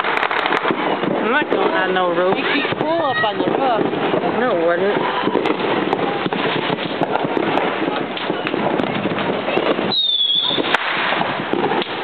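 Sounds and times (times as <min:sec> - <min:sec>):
fireworks crackling and popping: 0:00.0 - 0:12.0
high firework whistle: 0:09.6 - 0:11.2.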